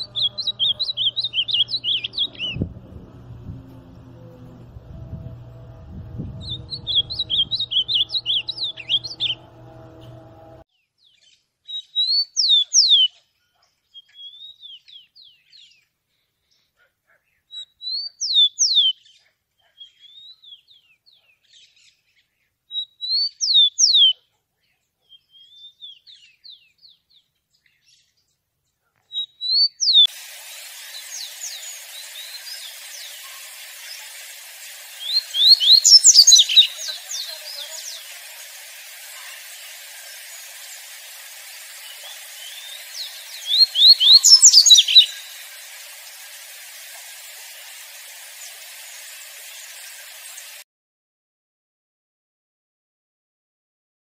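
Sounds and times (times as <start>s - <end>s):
sparrow whistling song: 0.0s - 2.6s, 6.3s - 9.4s, 11.7s - 13.1s, 35.0s - 38.1s, 41.2s - 45.5s
bird warbling fast: 0.0s - 2.7s, 6.4s - 9.4s, 30.0s - 50.6s
low steady hum: 0.0s - 10.6s
recording hiss: 0.0s - 10.6s, 29.8s - 50.6s.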